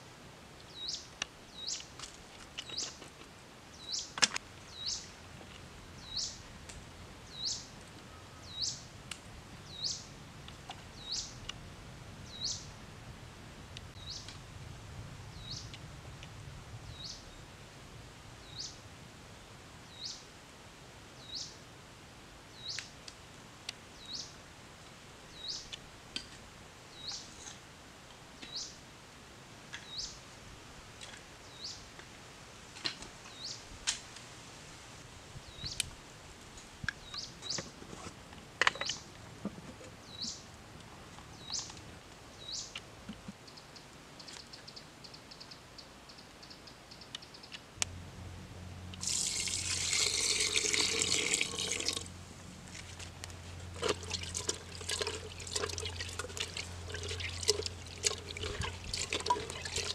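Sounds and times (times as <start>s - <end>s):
rushing splashing water: 53.8s - 59.9s.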